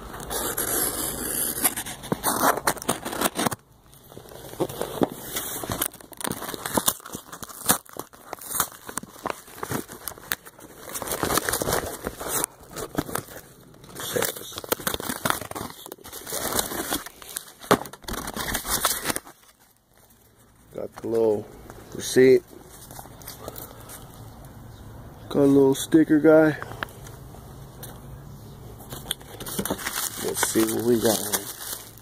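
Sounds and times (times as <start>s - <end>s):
mailer crinkling and tearing: 0.0s - 21.2s, 28.9s - 32.0s.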